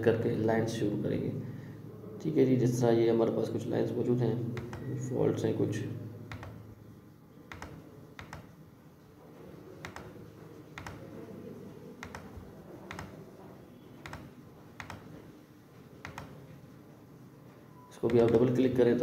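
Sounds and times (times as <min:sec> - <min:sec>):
computer mouse button clicking: 0:04.6 - 0:04.9, 0:06.3 - 0:06.6, 0:07.5 - 0:08.5, 0:09.8 - 0:10.2, 0:10.8 - 0:11.1, 0:12.0 - 0:13.2, 0:14.0 - 0:15.2, 0:16.0 - 0:16.4.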